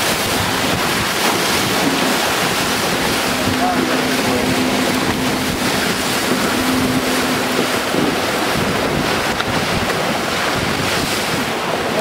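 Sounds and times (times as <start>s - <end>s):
water rushing along hull: 0.0s - 12.0s
wind buffeting microphone: 0.0s - 12.0s
steady low hum: 1.6s - 9.8s.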